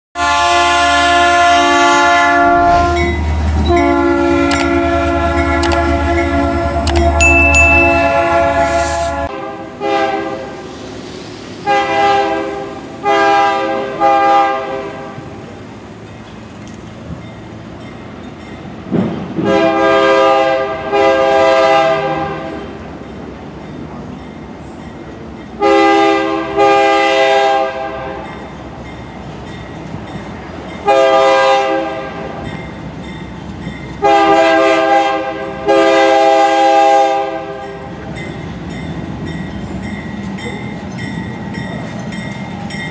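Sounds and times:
locomotive air horn blasts: 0:00.2 - 0:10.6, 0:11.6 - 0:15.3, 0:19.4 - 0:22.6, 0:25.6 - 0:28.3, 0:30.8 - 0:32.4, 0:34.0 - 0:37.8
train running: 0:00.2 - 0:42.9.

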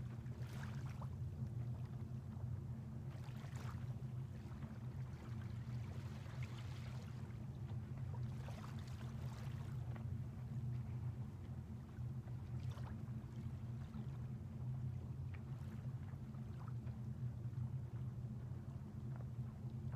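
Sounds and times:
small waves lapping on shore: 0:00.0 - 0:02.0, 0:03.1 - 0:11.2
steady low hum: 0:00.0 - 0:19.9.

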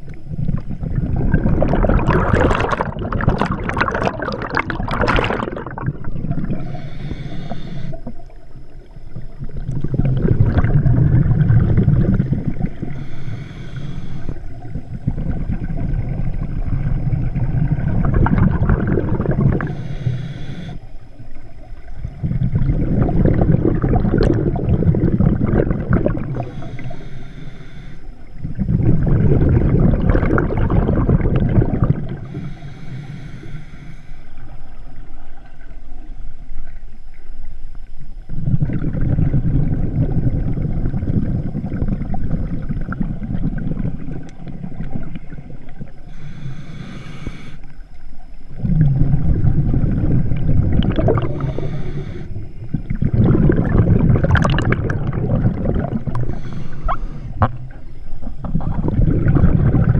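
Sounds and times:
exhaled bubbles rumbling underwater: 0:00.0 - 0:59.9
scuba regulator inhale hiss: 0:06.4 - 0:08.3, 0:12.4 - 0:14.8, 0:19.4 - 0:21.0, 0:26.2 - 0:28.4, 0:32.0 - 0:34.7, 0:45.9 - 0:47.8, 0:51.1 - 0:52.9, 0:56.0 - 0:58.3.

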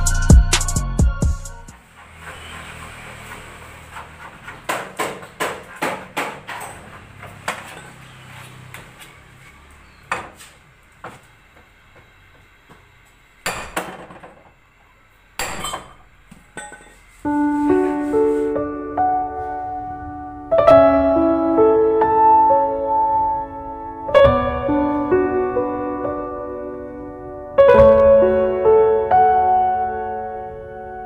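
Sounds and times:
piano music: 0:17.2 - 0:31.0.

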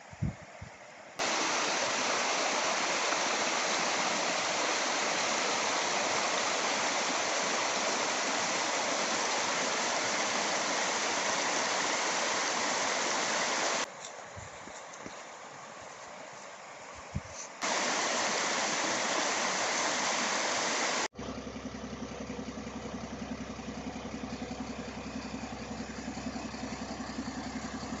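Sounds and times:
loud steady rushing noise: 0:01.2 - 0:13.9
creek water running: 0:01.2 - 0:21.1
diesel engine idling: 0:21.1 - 0:28.0.

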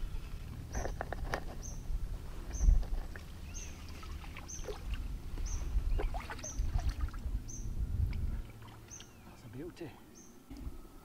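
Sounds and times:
small bird chirping: 0:00.0 - 0:01.9, 0:03.4 - 0:04.8, 0:05.4 - 0:06.8, 0:08.8 - 0:10.4
low rumble: 0:00.0 - 0:09.4
water splashing around a net: 0:03.1 - 0:05.1, 0:06.0 - 0:07.2.

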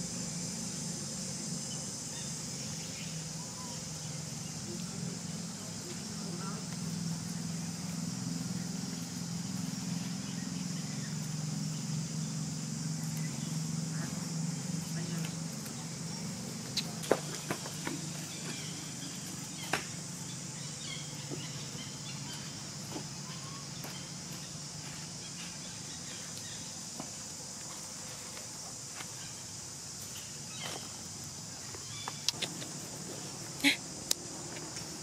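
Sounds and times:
high insect drone: 0:00.0 - 0:35.0
dry leaves rustling and clicking: 0:13.0 - 0:20.1.

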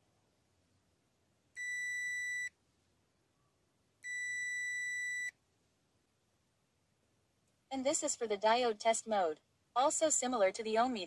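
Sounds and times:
multimeter continuity beep: 0:01.6 - 0:02.5, 0:04.0 - 0:05.4.

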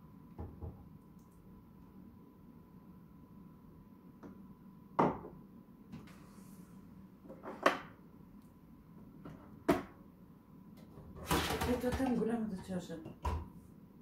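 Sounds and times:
glass cup set down on worktop: 0:05.0 - 0:05.3.

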